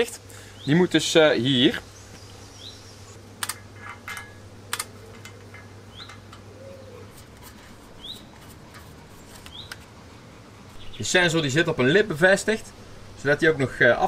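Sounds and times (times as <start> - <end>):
small bird chirping: 1.8 - 3.2, 5.9 - 7.1, 8.0 - 8.4, 9.2 - 9.8
metallic clicks of steel parts: 3.4 - 6.5.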